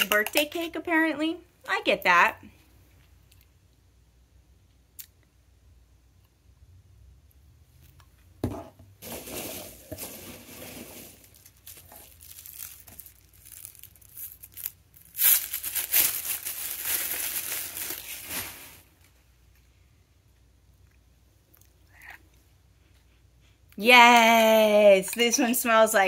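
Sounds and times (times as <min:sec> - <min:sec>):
wrapping crinkling and rustling: 0:09.0 - 0:19.2.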